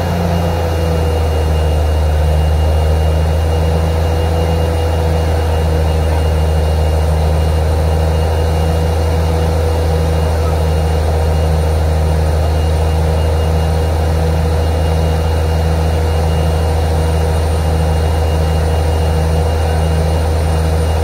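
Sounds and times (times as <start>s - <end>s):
drilling rig engine drone: 0.0s - 21.0s.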